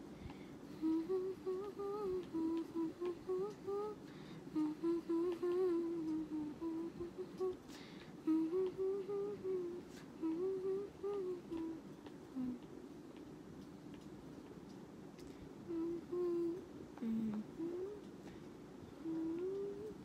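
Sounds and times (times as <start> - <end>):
woman humming: 0.7 - 12.7, 15.6 - 18.2, 18.9 - 20.0.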